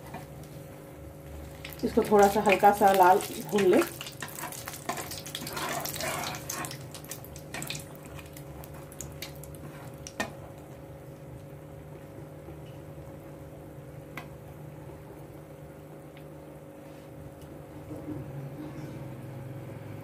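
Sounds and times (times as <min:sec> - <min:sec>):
chillies sizzling in hot oil: 0:01.4 - 0:10.4.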